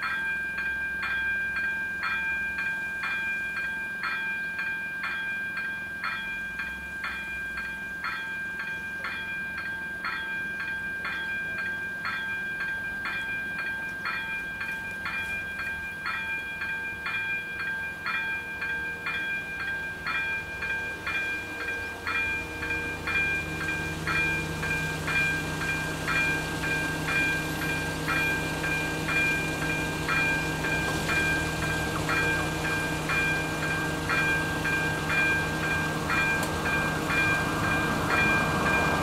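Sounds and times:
electronic crossing warning bell: 0.0s - 39.0s
low rumble of train: 0.0s - 39.0s
steady high tone: 17.4s - 39.0s.

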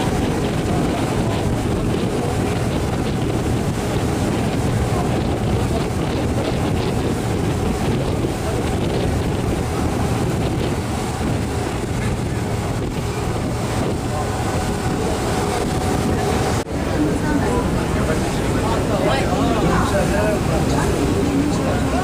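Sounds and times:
boat engine rumble: 0.0s - 22.0s
wind noise on microphone: 0.0s - 22.0s.

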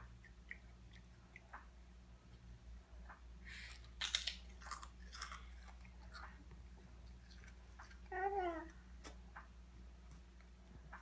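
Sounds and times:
children crunching crackers: 3.5s - 8.2s.

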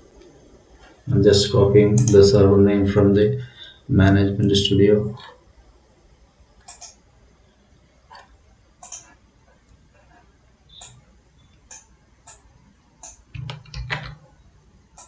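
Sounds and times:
computer mouse clicking: 6.6s - 7.0s, 8.1s - 9.8s, 10.7s - 14.3s.

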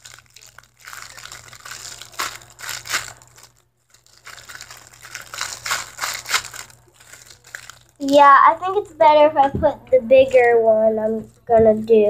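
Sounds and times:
plastic bag crinkling: 0.0s - 8.8s, 10.2s - 10.6s.

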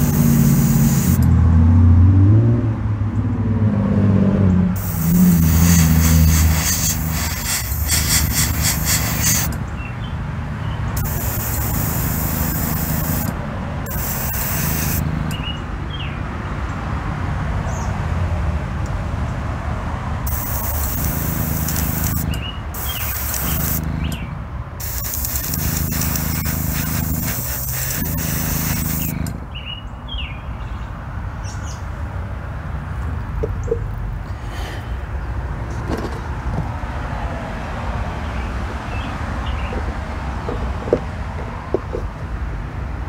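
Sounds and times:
aerosol can spraying: 0.0s - 1.2s, 4.8s - 9.6s, 11.0s - 15.3s, 20.3s - 24.2s, 24.8s - 29.3s
birds chirping: 14.4s - 16.2s, 22.2s - 24.4s.

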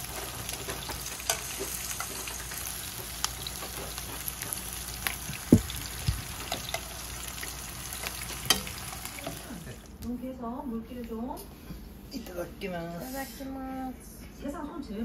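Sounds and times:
fish sizzling in a pan: 0.0s - 9.9s
loud knocks: 5.4s - 6.2s.

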